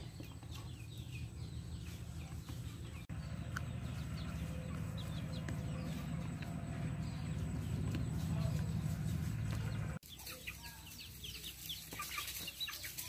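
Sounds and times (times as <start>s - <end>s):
birds chirping: 0.0s - 13.0s
steady low rumble: 2.9s - 10.0s.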